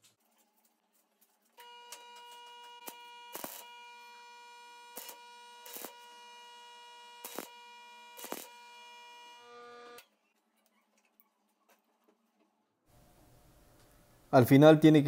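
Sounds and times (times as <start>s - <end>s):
arc welder humming: 1.6s - 10.1s
welding arc crackles: 1.9s - 10.0s.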